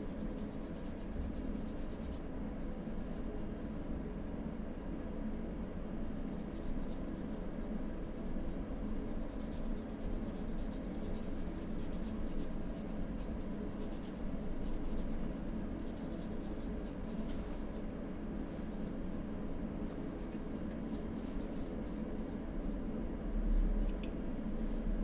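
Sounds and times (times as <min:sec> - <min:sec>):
low background hum: 0:00.0 - 0:25.0
paintbrush scratching on canvas: 0:00.1 - 0:02.2, 0:06.2 - 0:17.8, 0:20.2 - 0:22.7.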